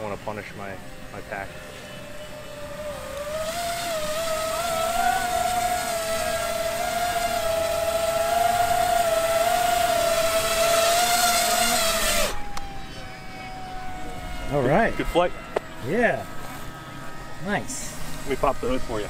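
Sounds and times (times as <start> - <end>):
drone motors whining: 0.0 - 19.0.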